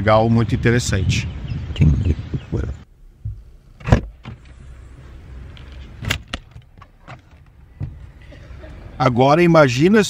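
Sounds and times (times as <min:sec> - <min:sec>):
steady low rumble: 0:00.0 - 0:06.8.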